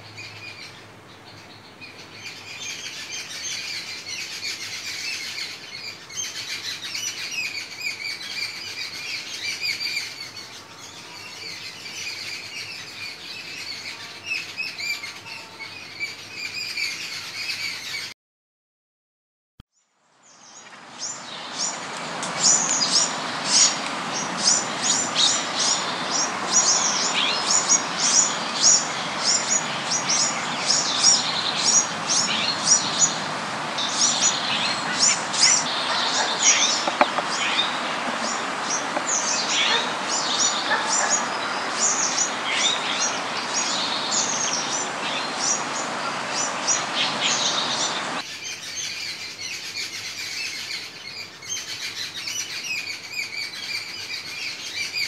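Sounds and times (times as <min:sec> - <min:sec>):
birds chirping: 0:20.3 - 0:55.0
steady background noise: 0:20.6 - 0:55.0.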